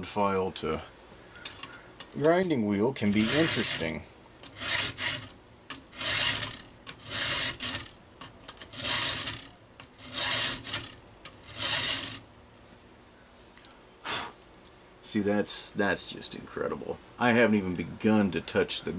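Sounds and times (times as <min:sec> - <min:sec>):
file rasping on saw chain: 0:03.1 - 0:03.9, 0:04.5 - 0:05.3, 0:05.9 - 0:07.9, 0:08.8 - 0:12.2.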